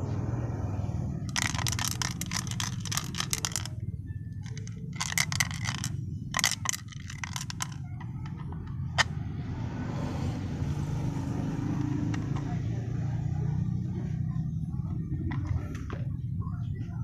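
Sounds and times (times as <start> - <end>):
low background rumble: 0.0 - 9.8
plastic parts clicking and scraping: 1.3 - 9.1, 15.3 - 16.1.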